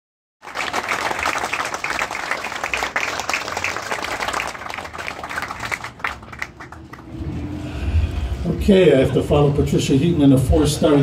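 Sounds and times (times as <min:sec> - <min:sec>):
crowd applauding: 0:00.4 - 0:07.5.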